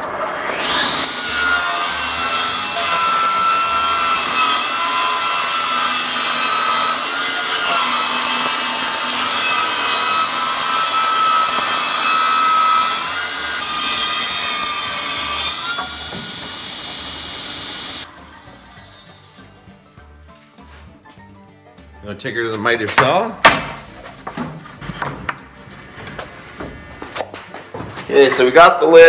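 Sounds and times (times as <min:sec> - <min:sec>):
table saw ripping wood: 0:00.0 - 0:18.1.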